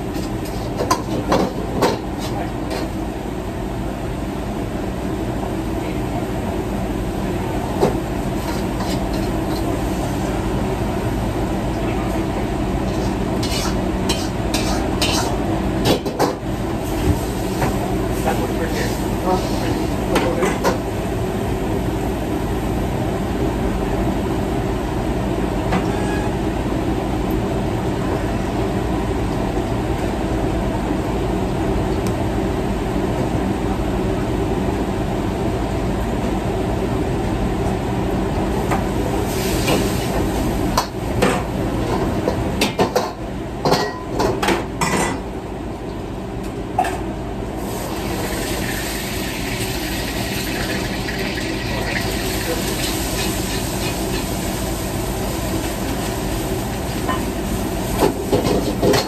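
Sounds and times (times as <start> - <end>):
food sizzling in wok: 7.9 - 11.5, 12.8 - 15.5, 38.9 - 41.2, 47.6 - 59.0
spatula clanking on pans: 13.4 - 16.4.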